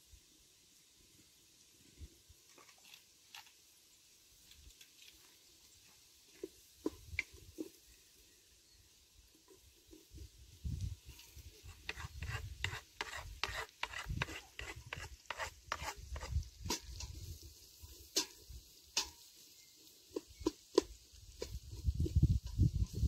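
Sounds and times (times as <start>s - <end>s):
wooden spoon scraping metal pot: 11.0s - 17.3s
food scraped off cutting board: 11.6s - 16.9s.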